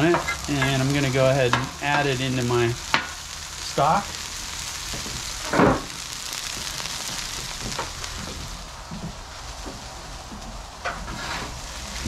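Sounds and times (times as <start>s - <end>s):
meat sizzling on griddle: 0.0s - 12.0s.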